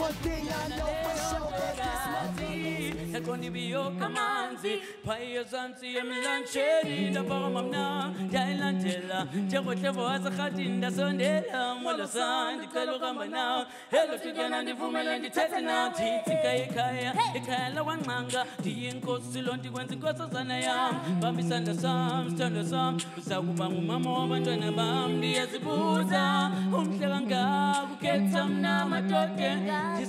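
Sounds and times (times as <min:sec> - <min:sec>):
low sung bass line: 0:00.0 - 0:03.8
vocal group singing in close harmony: 0:00.0 - 0:30.0.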